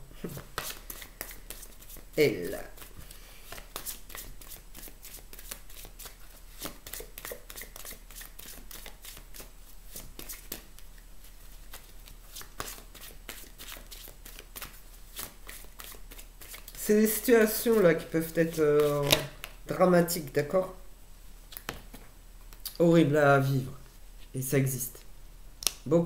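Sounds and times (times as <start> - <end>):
cards being shuffled: 0.3 - 19.6.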